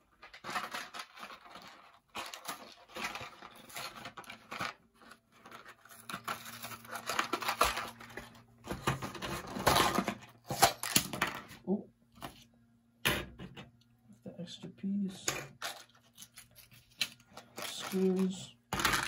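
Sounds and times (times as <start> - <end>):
packaging being torn and crinkled: 0.2 - 8.4, 15.6 - 19.0.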